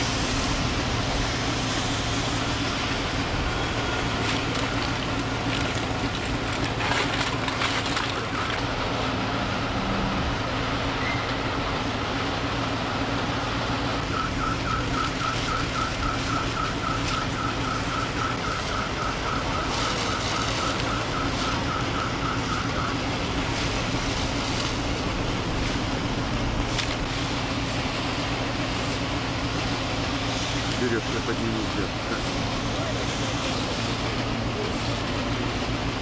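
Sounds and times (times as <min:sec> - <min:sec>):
engine hum: 0:00.0 - 0:36.0
rapid electronic beeping: 0:14.0 - 0:23.1.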